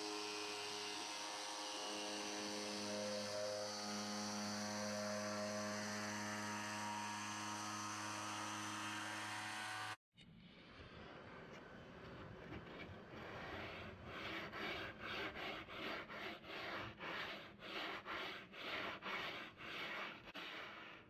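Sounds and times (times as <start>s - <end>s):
jigsaw cutting wood: 0.0s - 10.0s.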